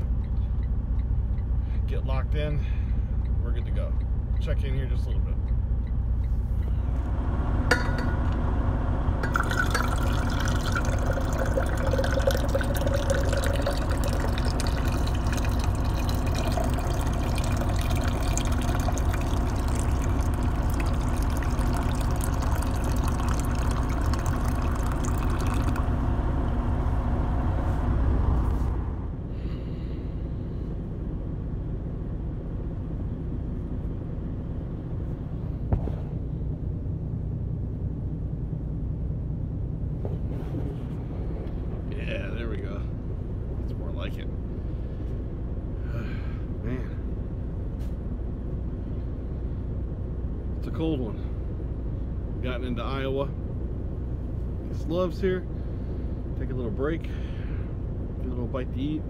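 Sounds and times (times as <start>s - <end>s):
coffee pouring into steel tumbler: 9.2s - 26.0s.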